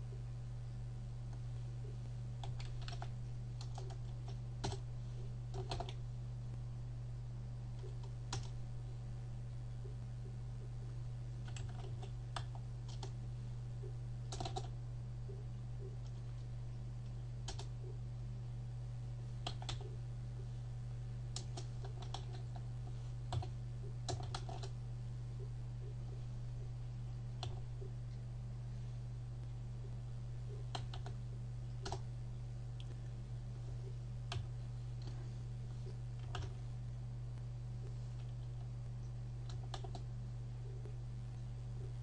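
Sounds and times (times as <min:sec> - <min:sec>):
steady low hum: 0:00.0 - 0:42.0
computer keyboard keystrokes: 0:02.4 - 0:04.8, 0:05.5 - 0:06.0, 0:07.8 - 0:08.6, 0:11.4 - 0:13.2, 0:14.3 - 0:14.7, 0:17.4 - 0:17.7, 0:19.4 - 0:20.0, 0:21.4 - 0:22.6, 0:24.1 - 0:24.8, 0:30.7 - 0:31.2, 0:39.4 - 0:40.1.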